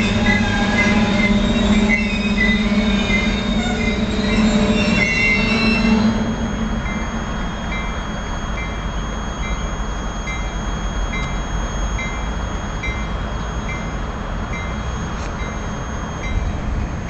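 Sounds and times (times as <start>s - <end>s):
warning bell dinging: 0.0s - 16.8s
train wheels rumbling on rails: 0.0s - 17.0s.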